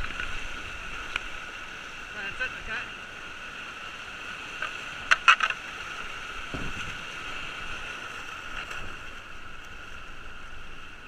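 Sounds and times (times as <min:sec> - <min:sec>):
white water rushing: 0:00.0 - 0:11.0
soft thud: 0:06.5 - 0:07.0.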